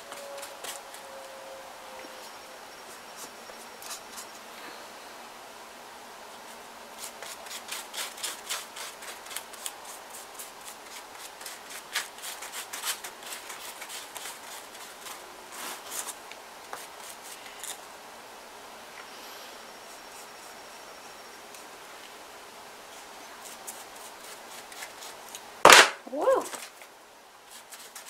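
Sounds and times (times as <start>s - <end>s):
paintbrush scratching on paper mache: 7.0s - 16.2s, 16.8s - 17.8s, 22.9s - 25.4s, 27.5s - 28.0s.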